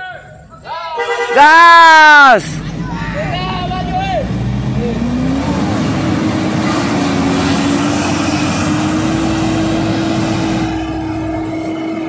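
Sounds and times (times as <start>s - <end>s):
tyres churning through mud: 2.4s - 12.0s
engine at high revs under load: 3.8s - 11.4s.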